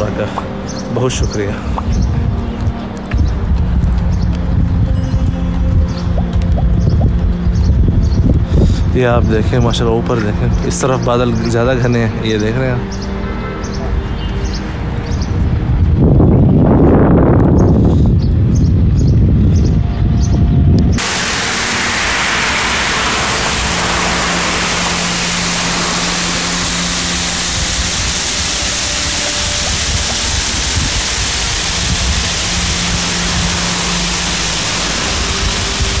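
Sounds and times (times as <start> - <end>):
wind buffeting microphone: 1.2 - 10.6, 13.9 - 36.0
water streaming and splashing: 21.0 - 36.0.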